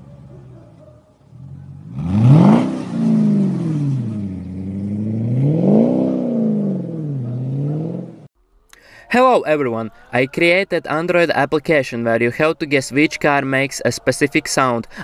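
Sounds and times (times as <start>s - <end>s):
car exhaust accelerating: 1.2s - 8.3s.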